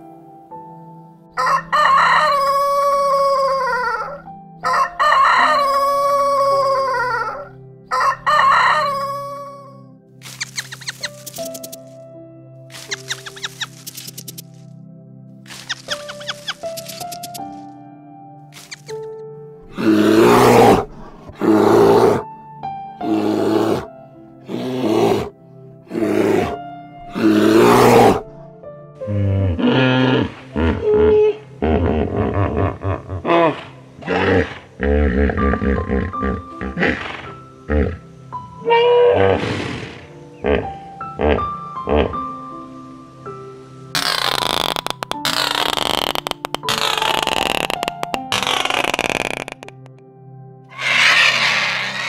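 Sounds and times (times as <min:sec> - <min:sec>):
soft piano music: 0:00.0 - 0:50.7
rooster crowing: 0:01.4 - 0:09.8
animal calling: 0:15.5 - 0:17.4, 0:19.7 - 0:22.3, 0:23.0 - 0:23.9, 0:24.5 - 0:25.3, 0:25.9 - 0:28.2, 0:29.4 - 0:38.0, 0:44.0 - 0:49.8, 0:50.7 - 0:52.0.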